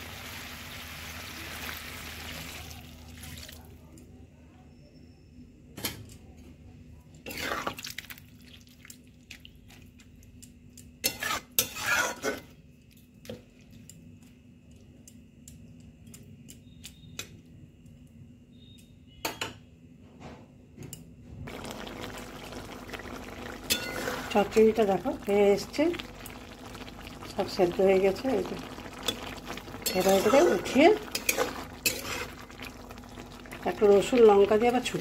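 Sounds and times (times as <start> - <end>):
metal spatula scraping metal pan: 11.0 - 12.5, 23.7 - 24.3, 29.8 - 32.3.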